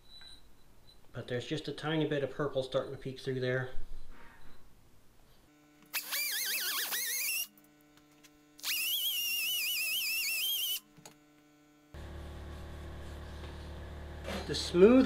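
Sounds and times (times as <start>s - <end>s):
die grinder whining on steel: 5.9s - 7.7s, 8.6s - 10.8s
steady low hum: 11.7s - 15.0s.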